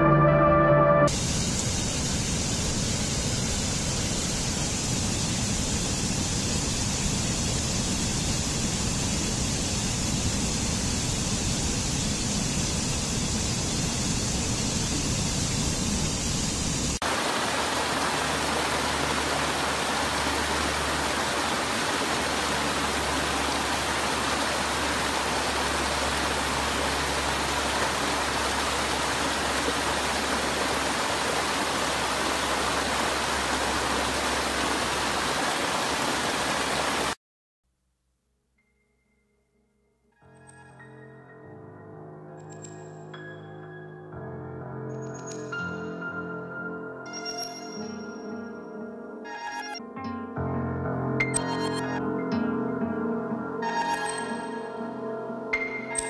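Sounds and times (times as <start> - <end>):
water rushing over rocks: 16.8 - 37.2
water spilling over small falls: 17.0 - 37.2.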